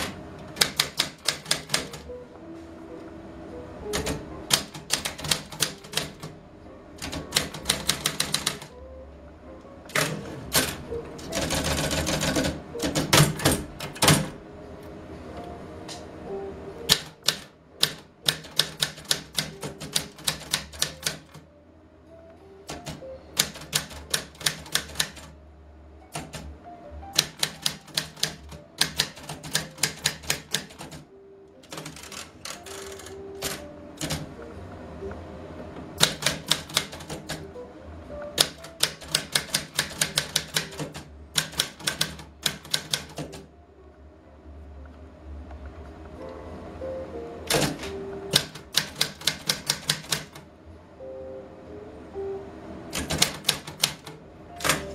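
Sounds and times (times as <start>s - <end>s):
manual typewriter key strikes: 0.0s - 2.0s, 3.9s - 6.3s, 7.0s - 8.7s, 9.9s - 14.4s, 16.9s - 21.4s, 22.7s - 25.3s, 26.1s - 26.5s, 27.1s - 31.0s, 31.6s - 34.3s, 36.0s - 37.5s, 38.4s - 43.4s, 47.5s - 50.4s, 52.9s - 54.9s.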